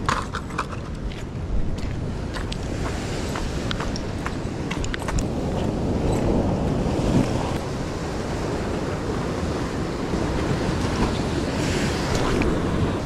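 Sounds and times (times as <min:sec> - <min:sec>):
wind buffeting microphone: 0:00.0 - 0:13.0
waves breaking on rock: 0:01.8 - 0:13.0.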